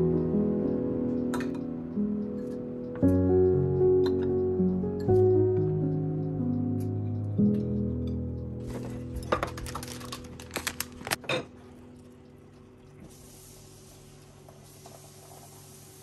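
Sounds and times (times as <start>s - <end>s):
background music: 0.0s - 11.2s
tableware clinking: 1.4s - 1.6s, 11.2s - 11.5s.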